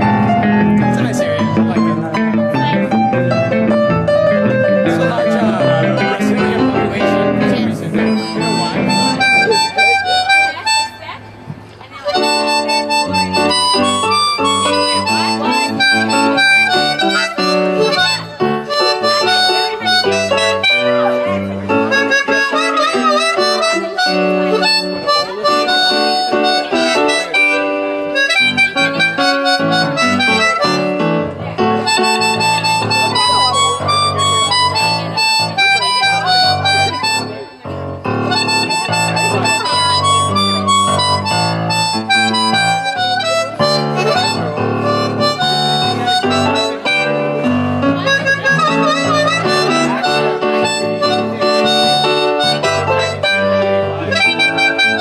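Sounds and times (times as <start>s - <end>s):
amplified blues harmonica: 0.0s - 11.4s, 12.0s - 55.0s
electric keyboard accompaniment: 0.0s - 55.0s.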